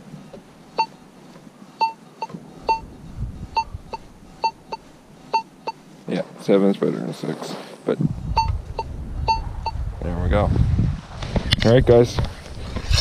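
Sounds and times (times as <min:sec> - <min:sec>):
metal detector beeps: 0:00.8 - 0:01.0, 0:01.8 - 0:02.9, 0:03.5 - 0:05.8, 0:08.4 - 0:09.8.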